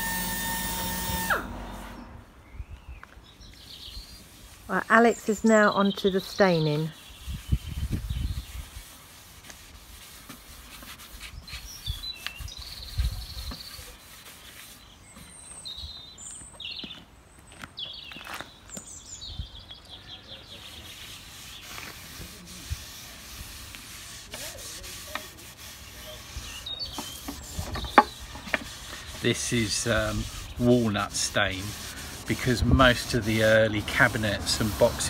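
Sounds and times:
birds chirping: 1.5s - 8.7s, 11.2s - 22.2s, 25.1s - 35.0s
hands rubbing wood: 7.2s - 14.9s, 20.7s - 35.0s.

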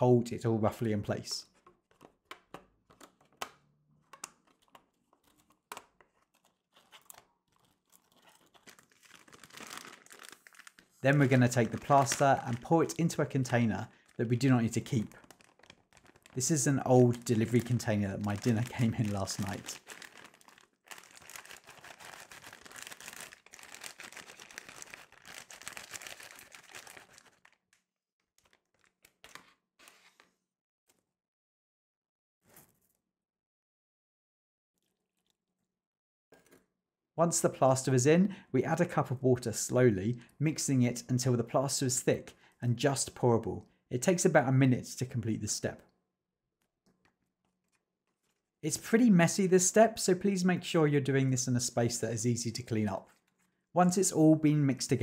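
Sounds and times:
plastic parts clicking and snapping: 1.6s - 8.8s
crinkly rustle: 6.4s - 27.7s.

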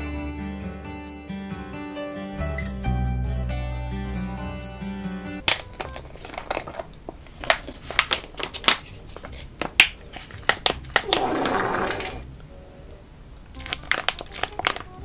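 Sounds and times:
plastic pouch crinkling: 5.4s - 12.2s, 13.4s - 15.0s
sauce spurting from spout: 11.0s - 12.2s.

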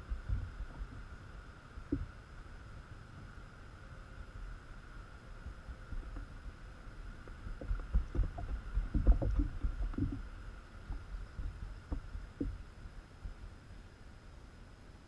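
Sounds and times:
hollow thumps on plastic hull: 7.3s - 10.3s.

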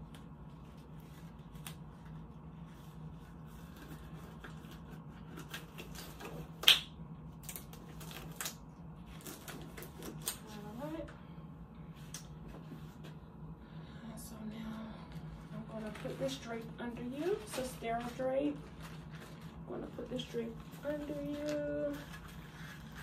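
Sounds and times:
rubber gloves rustling and snapping: 0.0s - 2.3s, 3.6s - 10.7s
steady low hum: 0.0s - 23.0s.

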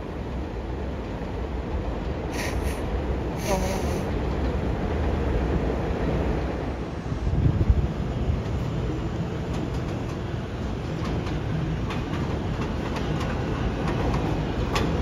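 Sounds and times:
subway train rumbling: 0.0s - 15.0s
brief high hisses: 2.3s - 2.8s, 3.4s - 4.1s.

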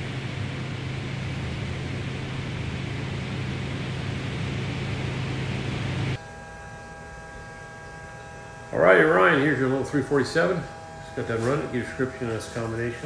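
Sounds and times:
car engine running: 0.0s - 6.2s
low electrical hum: 0.0s - 13.0s.

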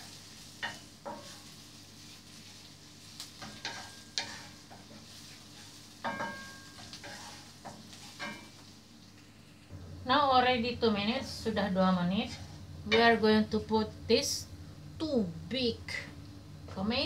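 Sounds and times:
wooden spatula scraping a pan: 0.0s - 8.7s, 12.1s - 12.7s
faint sizzle of food: 0.0s - 17.0s.

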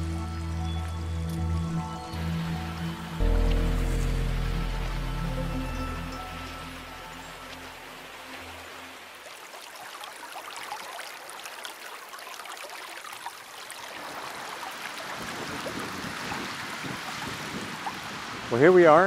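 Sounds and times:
background music: 0.0s - 9.2s
creek water trickling over stones: 0.0s - 19.0s.

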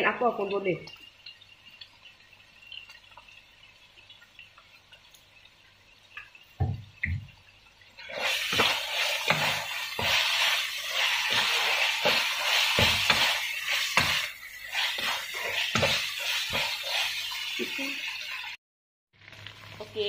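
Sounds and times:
meat sizzling in a wok: 0.0s - 18.6s, 19.2s - 20.0s
spatula scraping a wok: 8.1s - 18.0s.

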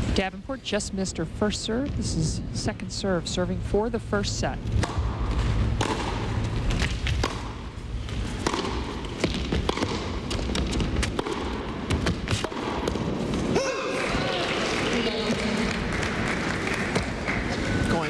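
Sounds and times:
low background hum: 0.0s - 18.0s
ball bouncing: 4.7s - 13.6s
racket striking tennis ball: 4.7s - 14.1s.

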